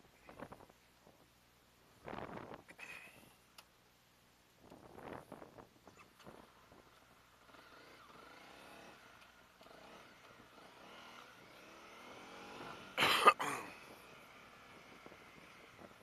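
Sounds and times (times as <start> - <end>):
motorcycle engine running faintly: 4.7 - 13.0, 13.6 - 16.0.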